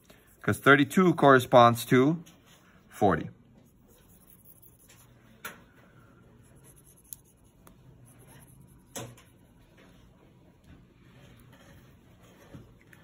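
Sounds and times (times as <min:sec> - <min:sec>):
marker scratching on plastic: 0:03.6 - 0:05.2, 0:06.4 - 0:09.7.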